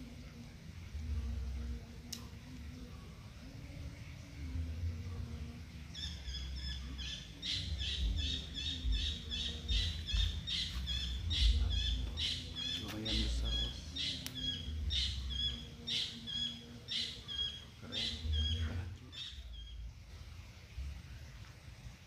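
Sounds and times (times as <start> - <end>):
bird chirping: 5.8 - 20.2.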